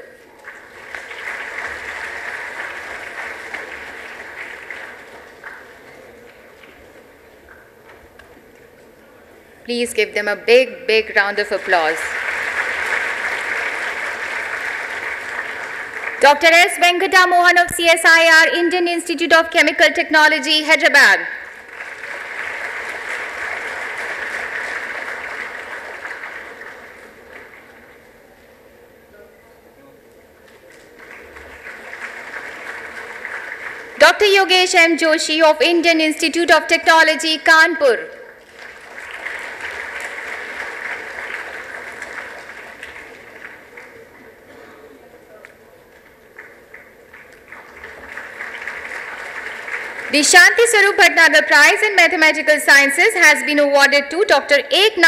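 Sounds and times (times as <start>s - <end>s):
audience applauding: 0.2s - 8.3s, 11.2s - 16.5s, 21.4s - 28.8s, 30.4s - 34.7s, 38.3s - 51.0s.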